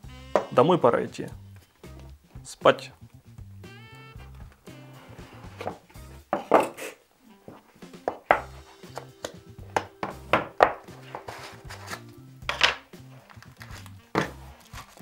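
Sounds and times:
quiet background music: 0.0s - 15.0s
cardboard scraping and rustling: 10.8s - 12.2s, 13.0s - 15.0s.

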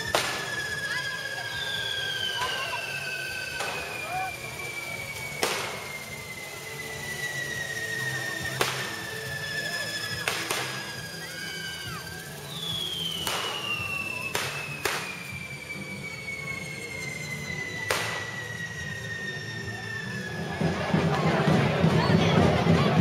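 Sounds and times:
firecracker bangs: 0.0s - 11.6s, 12.3s - 15.6s, 17.7s - 19.3s
falling firework whistles: 0.0s - 23.0s
spinning fireworks spraying sparks: 0.0s - 23.0s.

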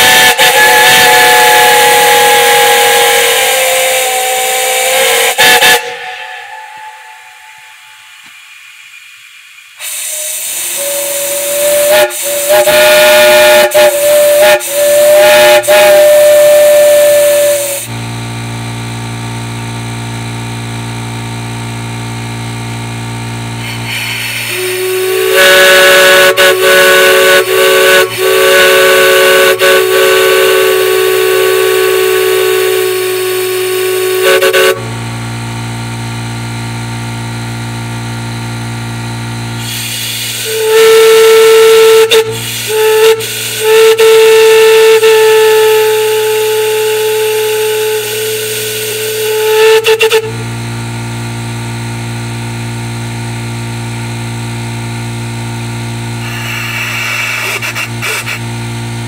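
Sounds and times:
chime whistle blasts: 3.7s - 8.7s
air compressor humming: 9.7s - 59.0s.

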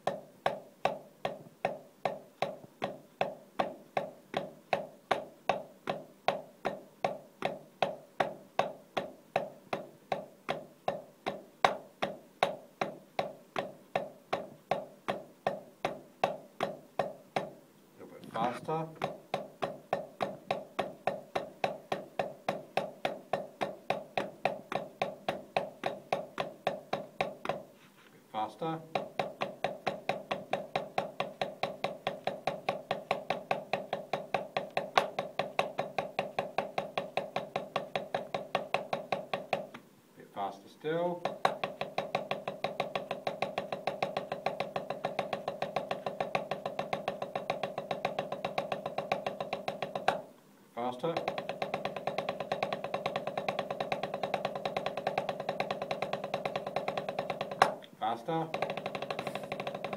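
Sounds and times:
drumsticks tapping practice pad: 0.0s - 17.6s, 18.4s - 27.8s, 28.4s - 59.9s
drumsticks rolling on practice pad: 51.0s - 59.9s.

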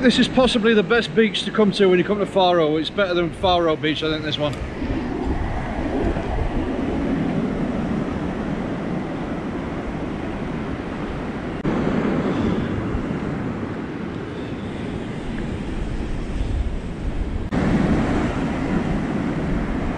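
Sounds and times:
surf breaking on beach: 0.0s - 19.9s
wind buffeting microphone: 0.0s - 19.9s.

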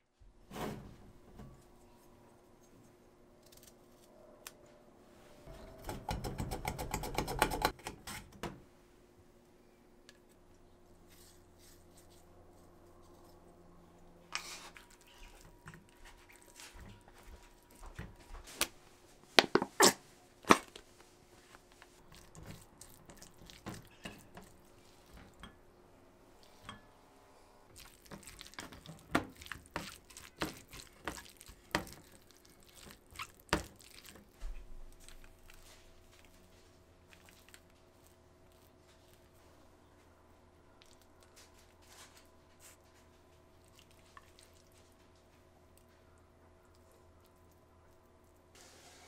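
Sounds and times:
bowls and utensils knocking: 5.5s - 7.8s
food squishing and scraping: 10.2s - 18.8s, 19.4s - 25.6s, 27.7s - 39.7s, 40.8s - 48.6s.

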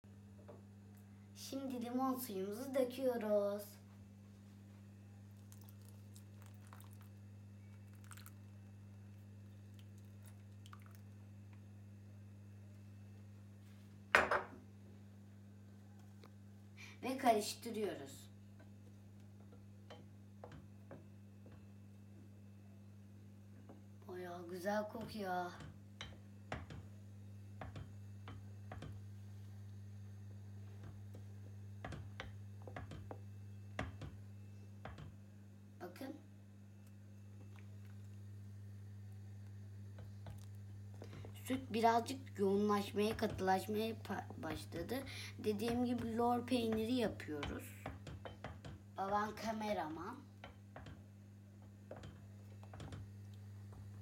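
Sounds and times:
steady low hum: 0.1s - 54.0s
plastic juicer squishing and crackling: 5.3s - 11.3s
wooden spoon knocking metal pot: 45.6s - 48.9s.

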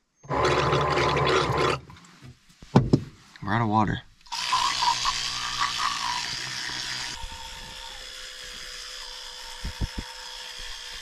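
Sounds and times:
electric toothbrush buzzing: 4.3s - 11.0s.

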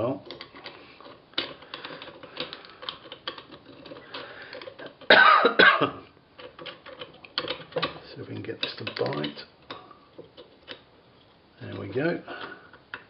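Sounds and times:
metal nut clicking and rattling: 0.0s - 5.1s, 6.4s - 12.1s
person coughing: 5.1s - 6.0s.

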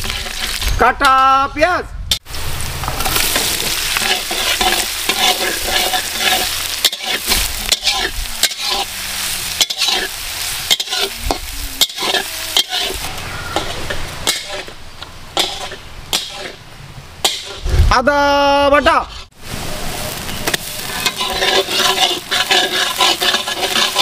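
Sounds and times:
spatula scraping and knocking wok: 0.0s - 0.7s, 2.8s - 16.6s, 17.2s - 17.7s, 20.2s - 24.0s
onions sizzling in oil: 0.0s - 0.8s, 2.2s - 16.6s, 19.3s - 24.0s.

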